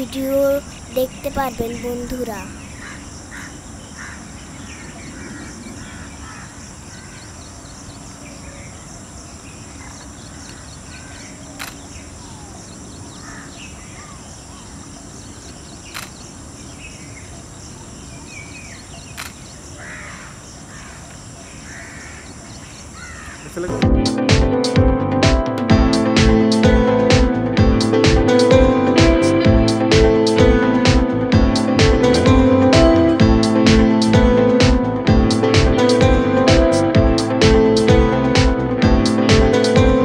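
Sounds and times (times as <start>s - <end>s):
sharp clicks: 11.6s - 11.8s, 15.9s - 16.2s, 19.2s - 19.4s.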